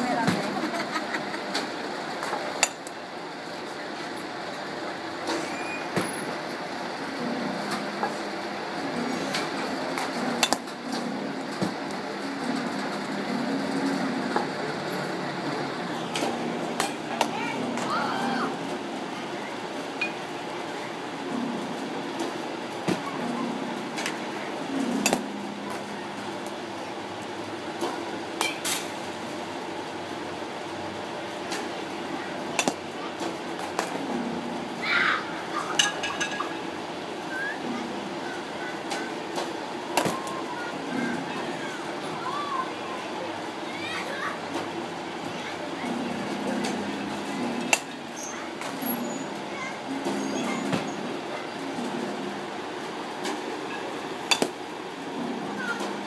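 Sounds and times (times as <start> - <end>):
steady background hum: 0.0 - 56.0
balls hitting cage: 24.9 - 25.8, 32.6 - 34.0, 38.9 - 40.4, 54.2 - 54.6
bat hitting balls: 25.0 - 25.3, 32.6 - 32.8, 54.2 - 54.6.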